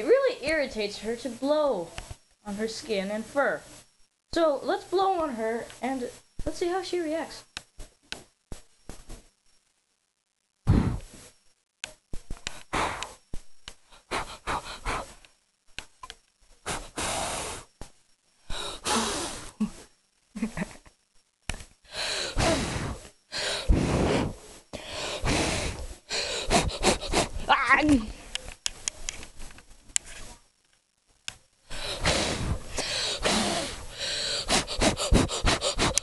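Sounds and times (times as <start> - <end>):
person blowing puffs of air: 10.6 - 11.3, 12.4 - 13.2, 13.9 - 15.2, 16.6 - 17.8, 18.4 - 19.8, 21.9 - 27.5, 31.7 - 36.0.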